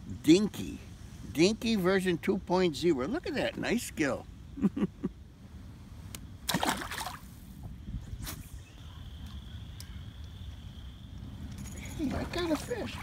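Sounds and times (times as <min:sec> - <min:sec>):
fish splashing into water: 0:06.4 - 0:07.2
water sloshing: 0:06.4 - 0:07.3, 0:11.8 - 0:13.0.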